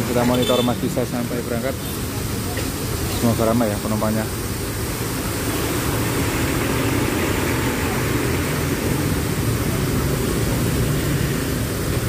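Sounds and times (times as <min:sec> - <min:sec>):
traffic hiss on wet road: 0:00.0 - 0:12.0
diesel bus engine idling: 0:04.7 - 0:12.0.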